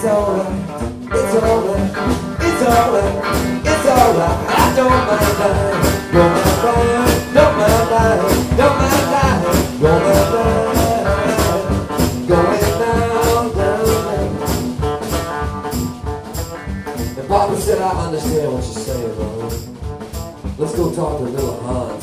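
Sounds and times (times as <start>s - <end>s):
man singing: 0.0s - 15.2s, 17.1s - 19.7s, 20.6s - 22.0s
drum kit beat: 0.0s - 22.0s
electric bass: 0.0s - 22.0s.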